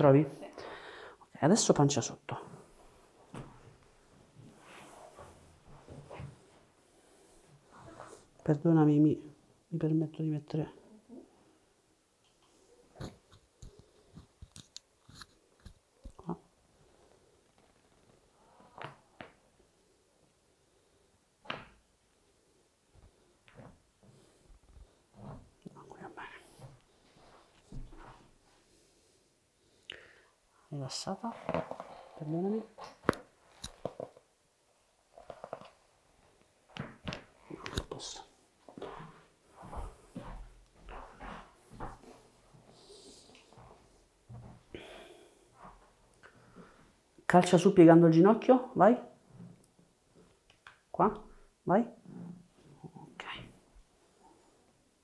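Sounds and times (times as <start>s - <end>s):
rustling of hands and clothing: 2.3s - 8.7s, 12.3s - 29.8s, 30.6s - 47.2s.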